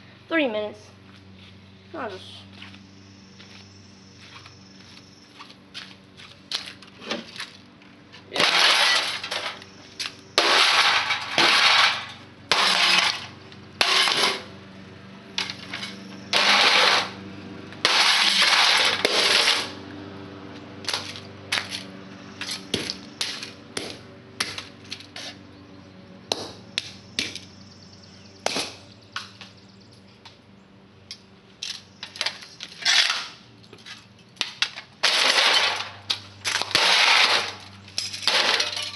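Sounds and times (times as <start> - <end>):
broken parts clattering: 8.3 - 9.7, 10.4 - 14.5, 15.4 - 17.2, 17.8 - 19.8, 31.6 - 38.9
sledgehammer smashing metal: 8.4 - 9.6, 10.4 - 14.5, 16.3 - 17.2, 17.8 - 19.8, 35.0 - 38.9.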